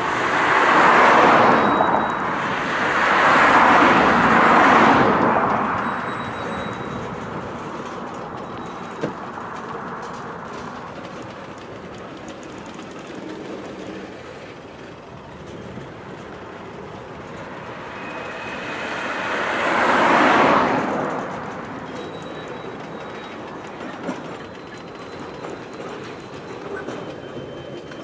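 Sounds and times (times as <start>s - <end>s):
rushing noise: 0.0s - 10.8s, 15.2s - 22.0s
train wheel clatter and rumble: 0.0s - 28.0s.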